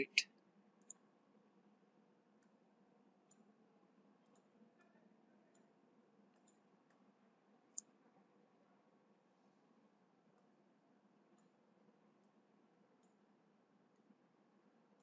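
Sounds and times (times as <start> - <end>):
computer mouse clicks: 0.8 - 1.0, 6.3 - 7.0, 7.7 - 7.9.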